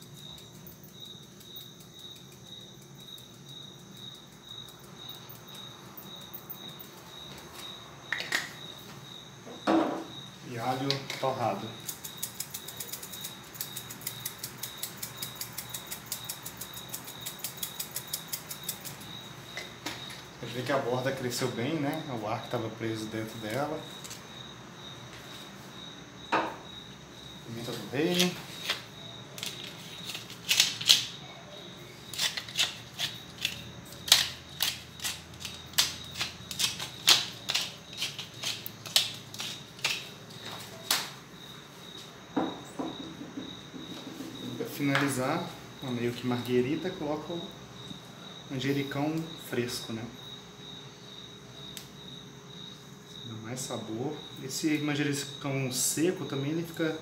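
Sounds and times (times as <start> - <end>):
pepper mill grinding: 11.1 - 19.2, 27.7 - 31.1, 32.0 - 40.2
spice grinder clicking: 11.8 - 19.0.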